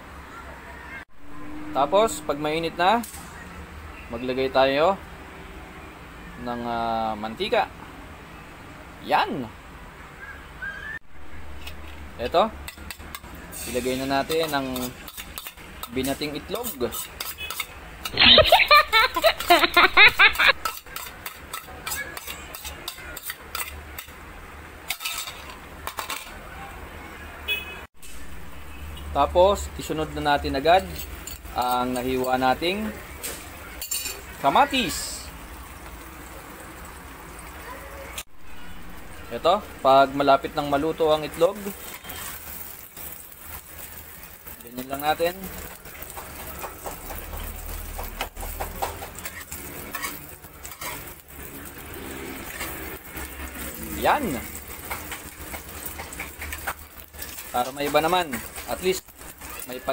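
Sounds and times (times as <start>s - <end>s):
egg frying in hot oil: 11.2s - 26.2s, 29.8s - 59.9s
metal spatula scraping a pan: 12.6s - 18.5s, 20.4s - 24.2s, 24.8s - 26.4s, 41.3s - 59.8s
spatula tapping a pan: 46.0s - 49.4s.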